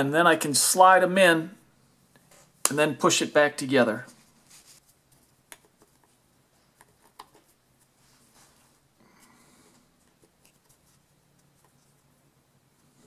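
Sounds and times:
soft rubbing: 0:04.0 - 0:13.0.

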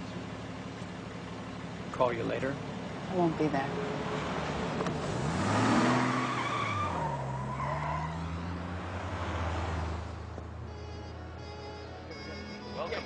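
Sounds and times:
car engine revving: 0:02.4 - 0:11.1
tyre squeal: 0:05.9 - 0:08.7.

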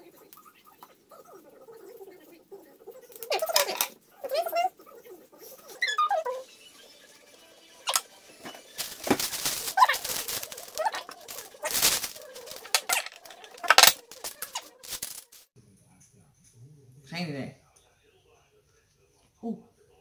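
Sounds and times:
faint pitched calls: 0:00.0 - 0:07.0, 0:07.8 - 0:14.8
plastic bag crinkling: 0:08.7 - 0:15.5.

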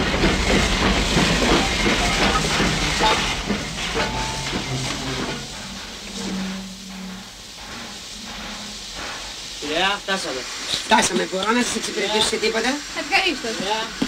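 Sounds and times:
hissing rush: 0:00.0 - 0:14.0
train wheels clattering: 0:00.0 - 0:14.0
low steady tones: 0:01.4 - 0:10.3.

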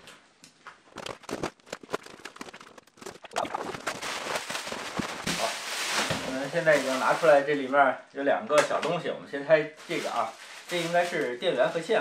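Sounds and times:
bubble wrap crackling: 0:01.0 - 0:07.7, 0:09.8 - 0:12.0
cardboard box rustling: 0:01.2 - 0:07.3.

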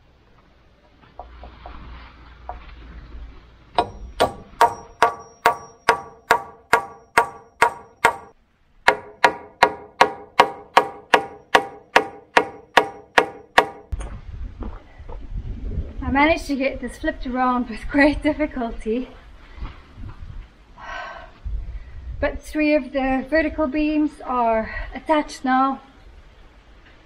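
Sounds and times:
hammer striking nails: 0:03.8 - 0:13.9.

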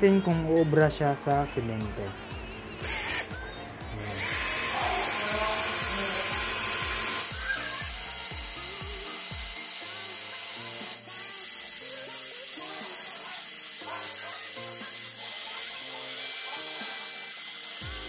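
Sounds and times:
background music with steady beat: 0:00.0 - 0:18.0
drill grinding into concrete: 0:04.0 - 0:18.0.

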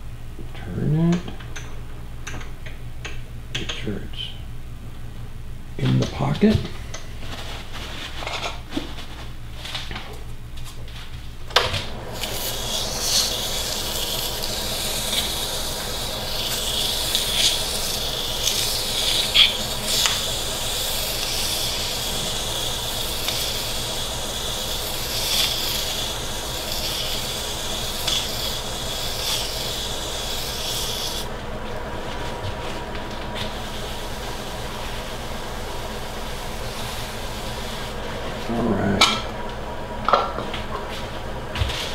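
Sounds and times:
lathe motor hum: 0:11.8 - 0:41.9
sandpaper hissing on spinning wood: 0:12.0 - 0:31.3, 0:32.1 - 0:38.1.

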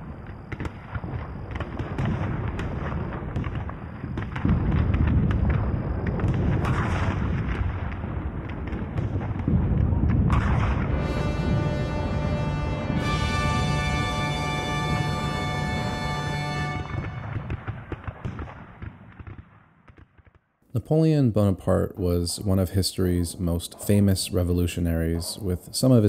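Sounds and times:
distant cannon fire booms: 0:00.0 - 0:20.4
gunshot cracks: 0:00.5 - 0:20.4
dark sustained music: 0:10.8 - 0:17.9.

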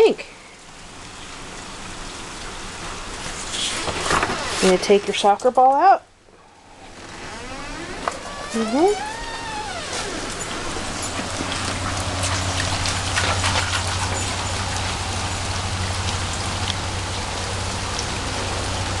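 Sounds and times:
steady rain falling: 0:00.0 - 0:19.0
water taps and drips: 0:08.0 - 0:19.0.

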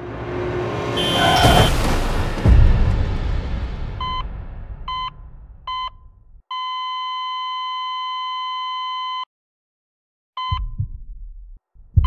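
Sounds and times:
heart monitor beeps: 0:04.9 - 0:09.3, 0:10.4 - 0:11.0.

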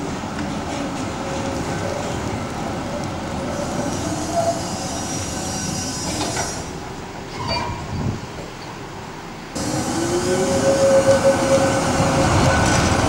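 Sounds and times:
tram wheels rumbling on track: 0:00.0 - 0:13.0
high wheel squeal: 0:03.5 - 0:08.0.

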